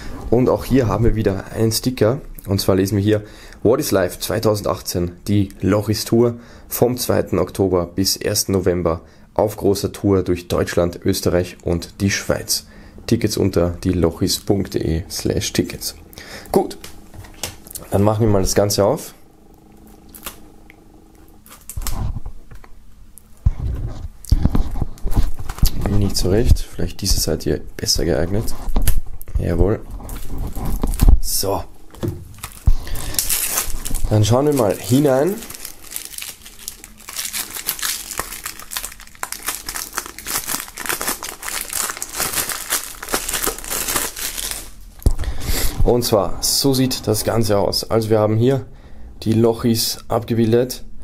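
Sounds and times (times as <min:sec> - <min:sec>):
cellophane crinkling: 0:19.8 - 0:20.5, 0:21.4 - 0:22.2, 0:24.6 - 0:26.6, 0:30.1 - 0:45.1
plastic handling noise: 0:21.3 - 0:22.8, 0:23.4 - 0:26.6, 0:28.4 - 0:45.2
blade scraping plastic film: 0:32.3 - 0:44.8.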